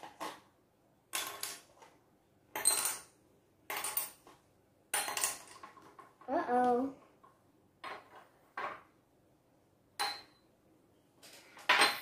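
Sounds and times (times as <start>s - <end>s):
balls clinking into glass jars: 1.1s - 1.9s, 2.5s - 6.3s, 10.0s - 10.5s, 11.2s - 12.0s.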